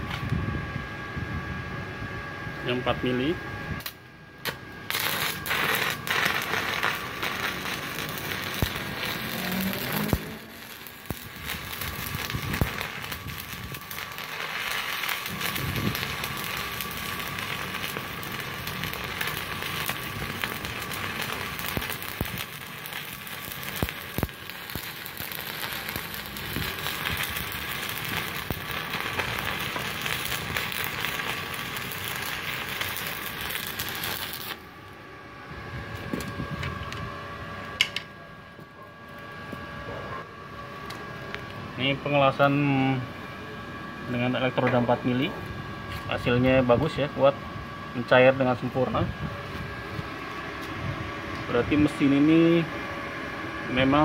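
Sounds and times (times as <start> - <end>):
welding arc crackling hiss: 3.8 - 34.8.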